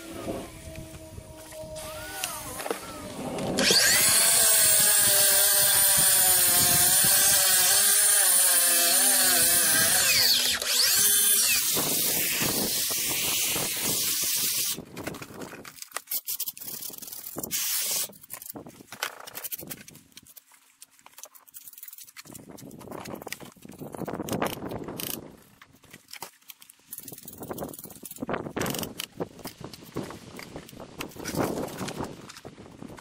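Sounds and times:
angle grinder cutting masonry: 0.0s - 14.8s.

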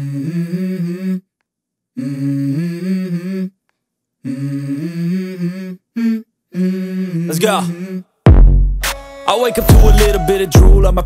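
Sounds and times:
person humming a melody: 0.0s - 1.3s, 2.0s - 3.6s, 4.2s - 8.1s.

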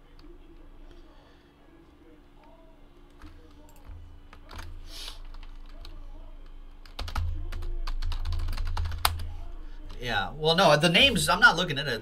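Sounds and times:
low steady hum: 0.0s - 12.0s
keyboard typing: 3.1s - 6.0s, 6.8s - 9.3s.

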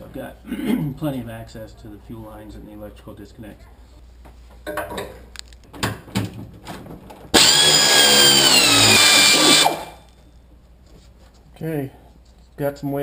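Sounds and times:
pneumatic ratchet spinning: 7.4s - 10.0s.

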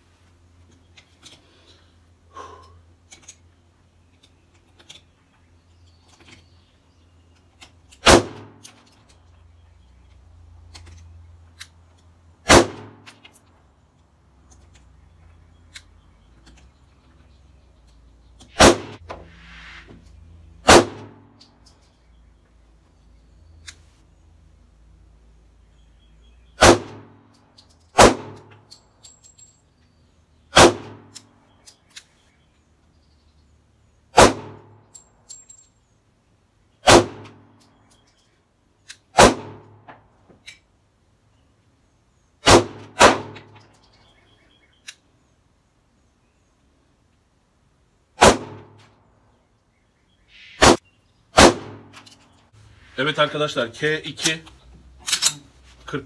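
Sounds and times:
pistol shots: 8.0s - 8.6s, 12.4s - 13.1s, 18.6s - 19.0s, 20.6s - 21.2s, 26.6s - 27.2s, 27.9s - 28.5s, 30.5s - 31.2s, 34.1s - 34.7s, 36.8s - 37.4s, 39.2s - 39.8s, 42.4s - 43.5s, 48.2s - 48.8s, 50.6s - 52.0s.

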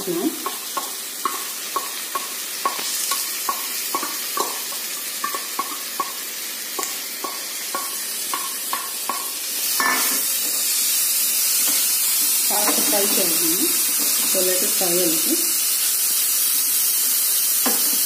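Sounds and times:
onions sizzling in hot oil: 0.0s - 18.0s
wooden spatula tapping steel bowl: 3.4s - 4.6s.

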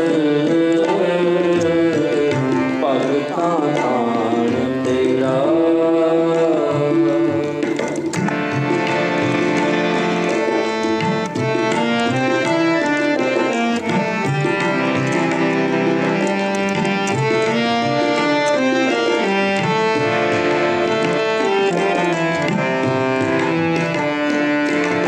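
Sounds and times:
harmonium melody: 0.0s - 25.0s
tabla rhythm: 0.0s - 25.0s.

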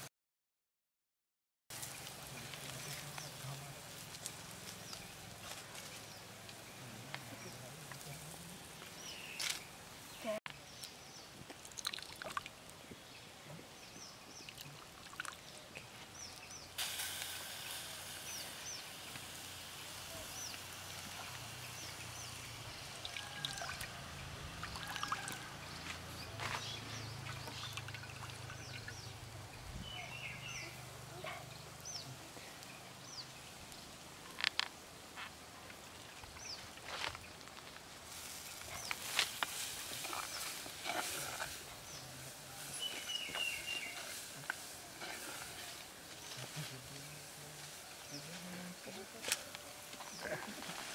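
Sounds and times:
water trickling into a bowl: 11.6s - 12.6s, 14.4s - 15.6s, 22.9s - 25.4s, 27.2s - 29.0s.

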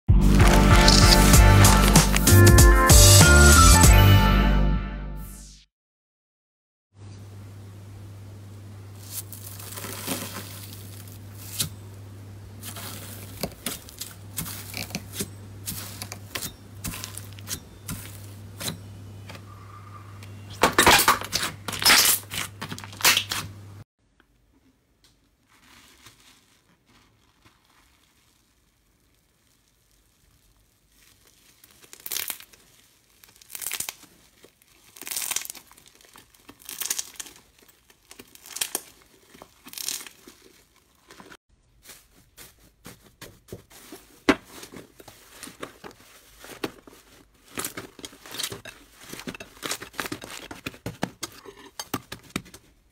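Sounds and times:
foil sheets crinkling: 0.1s - 3.0s, 8.9s - 19.2s, 20.6s - 23.5s, 25.2s - 52.9s
slime being stretched: 0.3s - 2.3s, 25.2s - 41.4s.

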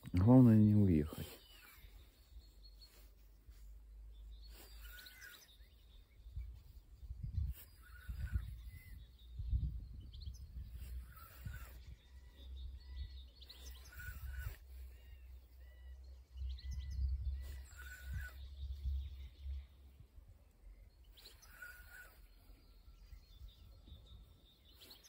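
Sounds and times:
small birds chirping: 0.0s - 25.0s
wind rumble on microphone: 5.8s - 14.9s, 16.0s - 20.6s.

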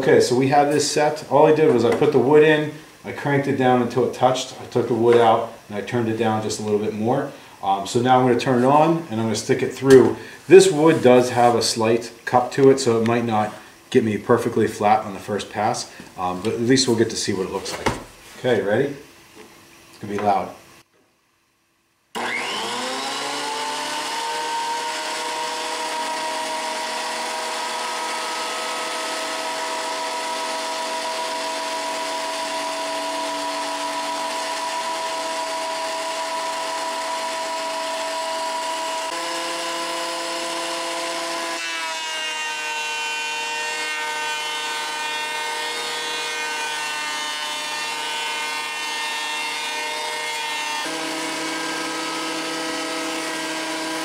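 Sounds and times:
board being planed: 22.2s - 54.0s
thickness planer whining: 22.2s - 54.0s.

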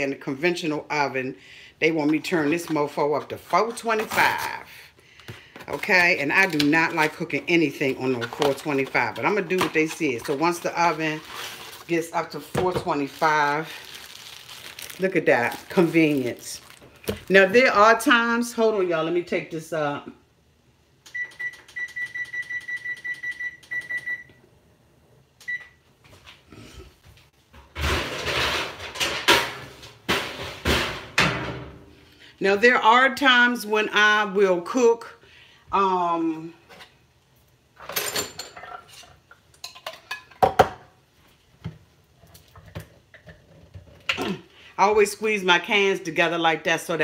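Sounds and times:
appliance control panel beeps: 21.1s - 24.4s, 25.4s - 25.8s
dishes clinking and knocking: 37.8s - 40.9s.

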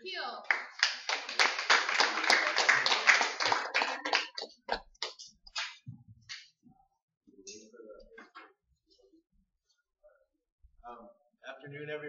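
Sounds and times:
audience applauding: 0.5s - 5.8s.

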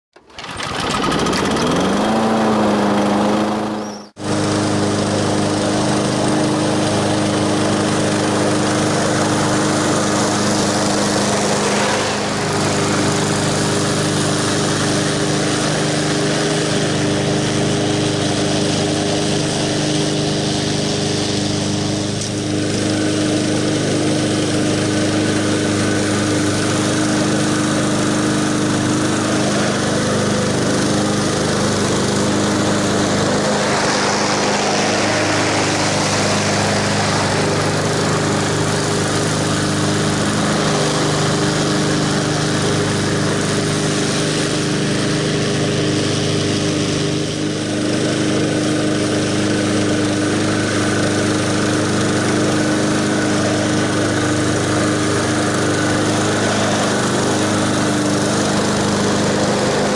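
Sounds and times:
lawn mower engine cutting grass: 0.1s - 59.9s.

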